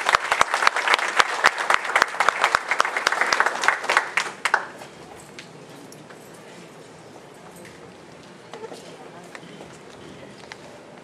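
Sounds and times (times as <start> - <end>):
audience applauding: 0.0 - 4.9.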